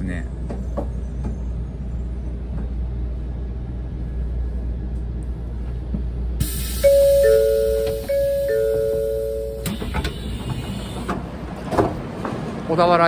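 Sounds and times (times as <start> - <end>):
two-tone announcement chime: 6.8 - 9.7.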